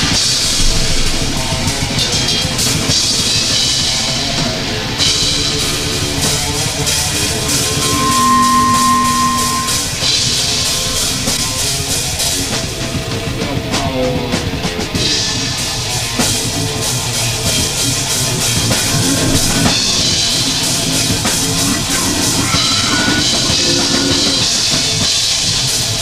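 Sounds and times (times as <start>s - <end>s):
cymbal crashes: 5.0s - 11.5s
held note: 5.6s - 11.4s.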